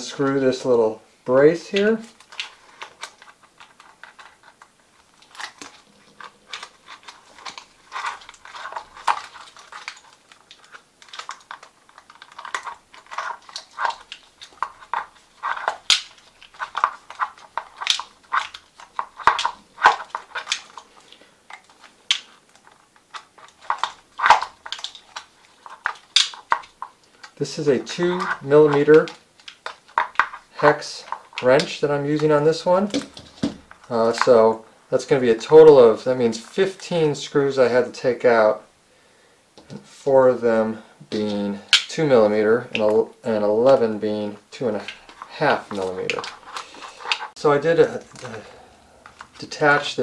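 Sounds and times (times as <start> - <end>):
plastic rattles: 1.7 - 34.6, 44.6 - 50.0.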